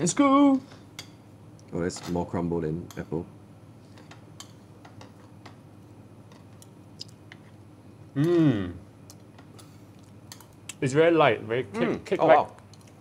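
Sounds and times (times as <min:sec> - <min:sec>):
man's appreciative vocal sound: 0:08.2 - 0:08.8
forks clicking against plate: 0:10.3 - 0:10.6.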